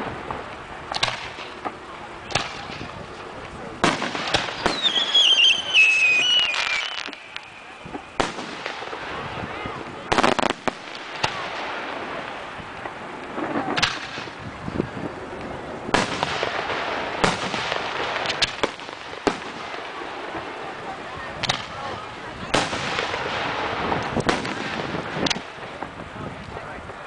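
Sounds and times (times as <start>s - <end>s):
continuous rushing noise: 0.0s - 27.0s
firework shells bursting: 0.3s - 9.3s.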